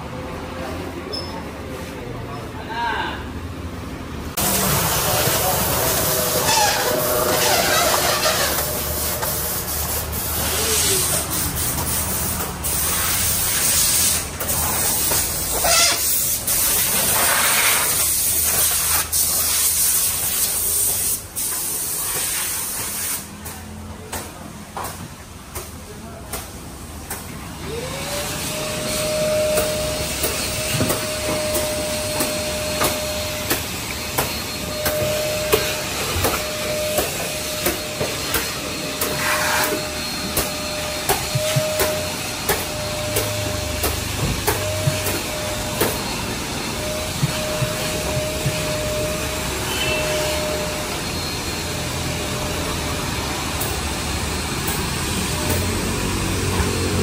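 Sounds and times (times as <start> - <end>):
loud continuous hiss: 3.3 - 23.3
motor whine: 27.6 - 57.0.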